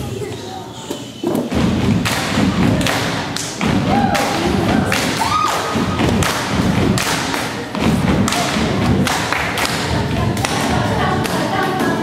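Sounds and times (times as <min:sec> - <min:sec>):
stomps and body percussion: 0:01.3 - 0:11.5.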